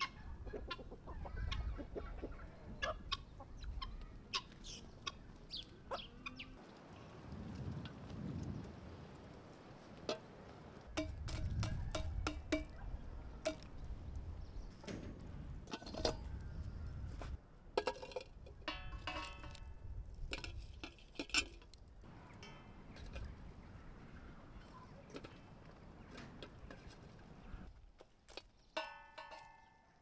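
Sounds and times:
dishes and utensils clinking: 17.8 - 19.8, 28.8 - 29.7.

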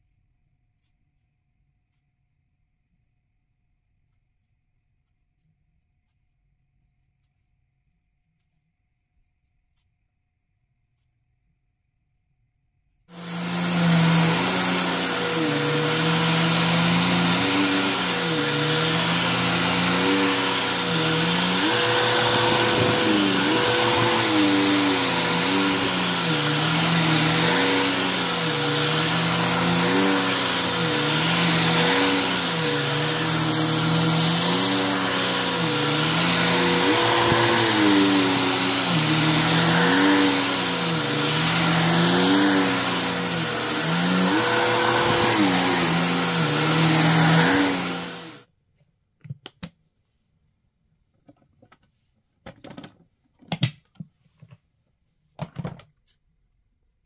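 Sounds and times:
vacuum cleaner running over carpet: 13.1 - 48.4.

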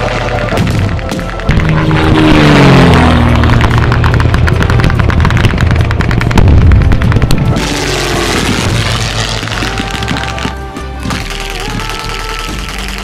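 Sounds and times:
propeller aircraft passing overhead: 0.0 - 8.8
loud blast: 6.4 - 10.1.

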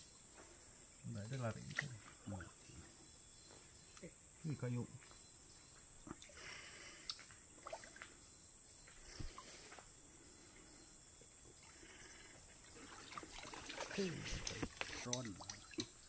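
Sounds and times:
small splashes: 7.0 - 8.2, 12.5 - 16.0
stream water trickling: 7.0 - 16.0.

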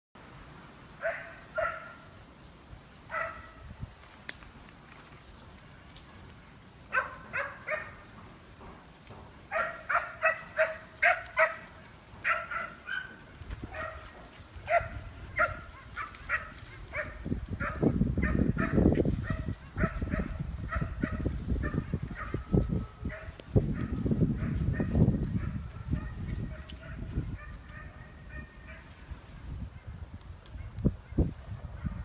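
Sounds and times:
hound baying: 6.9 - 8.0, 9.5 - 28.9.

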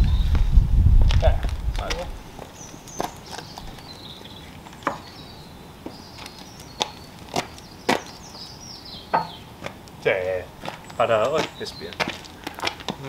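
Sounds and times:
faint birdsong: 0.0 - 0.6, 1.2 - 13.0
wooden timbers knocking: 9.1 - 9.8.

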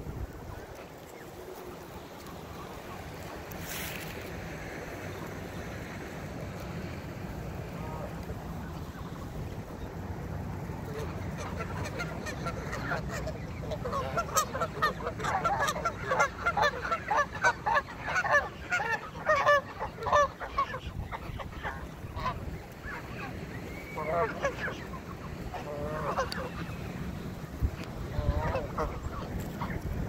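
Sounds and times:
geese honking: 7.6 - 30.0.

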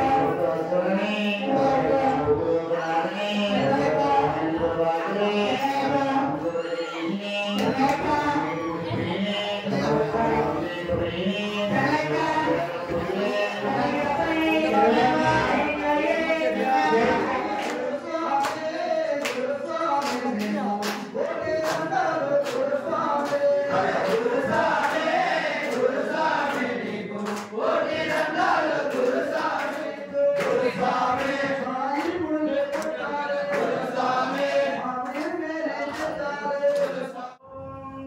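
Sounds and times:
men singing a chant: 0.0 - 38.0
hand claps: 17.5 - 37.1.

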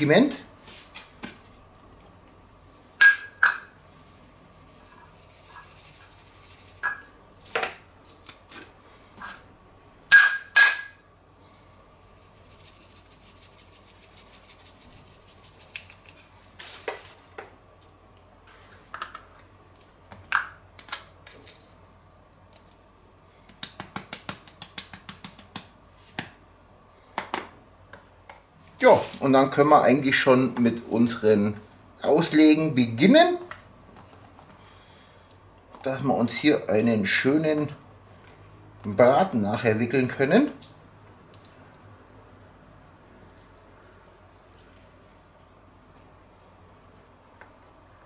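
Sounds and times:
spices shaken out hissing: 3.7 - 7.2, 11.6 - 17.3.

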